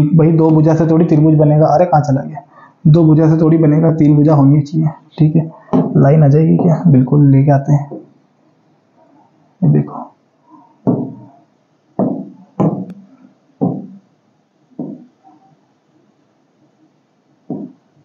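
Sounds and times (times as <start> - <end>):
tapping on a touchscreen board: 10.8 - 11.2, 12.0 - 13.0, 13.6 - 14.0, 14.8 - 15.1, 17.5 - 17.8.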